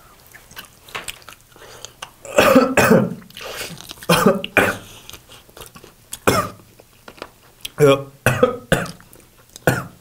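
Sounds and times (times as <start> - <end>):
man coughing: 2.3 - 3.2, 4.1 - 4.8, 6.3 - 6.6, 8.3 - 9.0, 9.7 - 10.0.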